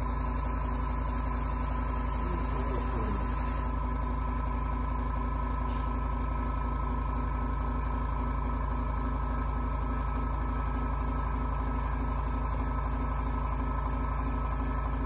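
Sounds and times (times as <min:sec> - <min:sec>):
airbrush hiss: 0:00.0 - 0:03.7
extraction fan motor hum: 0:00.0 - 0:03.8.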